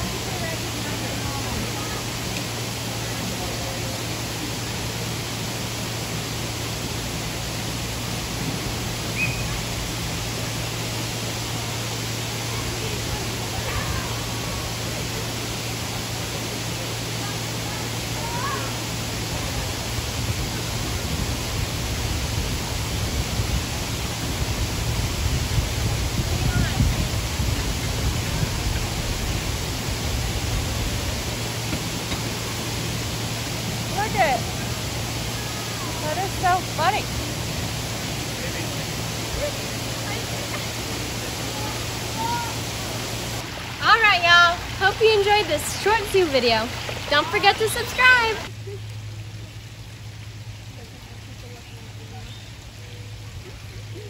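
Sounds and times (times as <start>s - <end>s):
steady rushing noise: 0.0s - 48.5s
high chirp: 9.2s - 9.6s.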